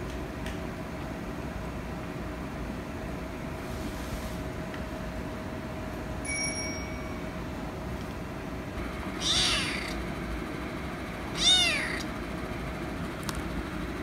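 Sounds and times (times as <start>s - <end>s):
kitten meowing: 9.2s - 10.0s, 11.3s - 12.1s.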